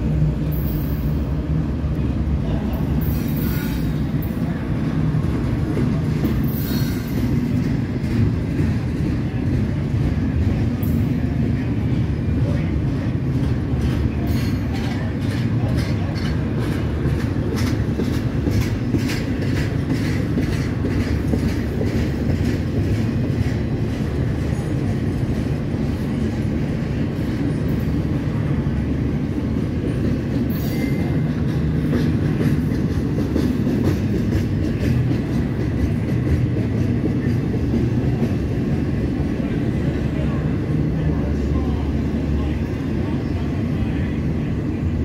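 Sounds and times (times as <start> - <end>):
train wheels rumbling on rail: 0.0 - 45.0
wheels clicking over rail joints: 2.7 - 28.2, 29.4 - 39.9.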